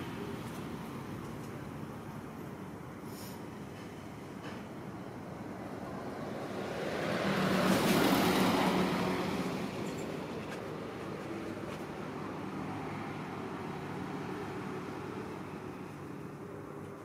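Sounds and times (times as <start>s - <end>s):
steady background noise: 0.0s - 17.0s
vehicle passing by: 5.6s - 16.2s.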